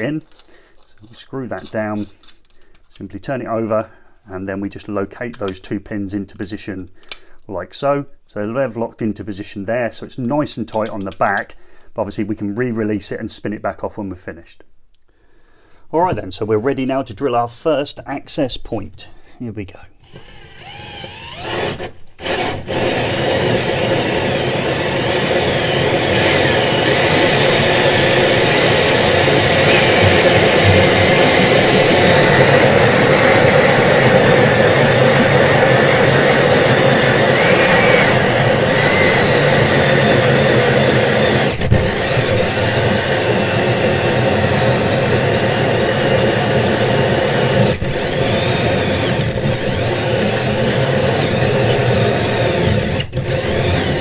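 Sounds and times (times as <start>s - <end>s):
drill hole saw cutting board: 0.0s - 2.3s, 20.0s - 54.0s.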